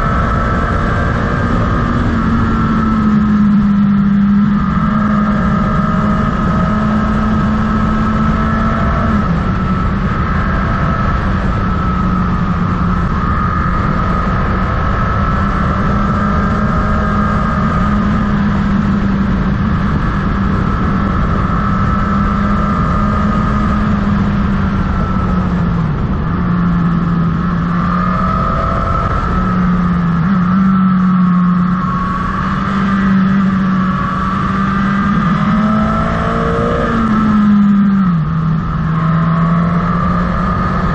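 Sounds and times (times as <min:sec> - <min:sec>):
motorcycle engine running: 0:00.0 - 0:40.9
wind and road noise: 0:00.0 - 0:40.9.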